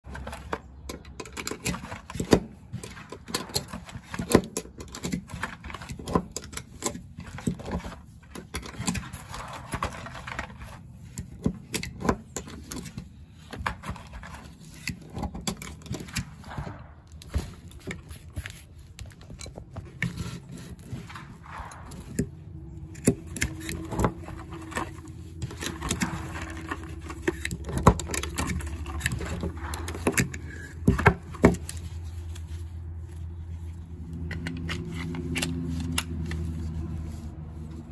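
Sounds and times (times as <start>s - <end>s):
magazine loader clicking and scraping: 0.6s - 32.5s, 34.0s - 37.0s.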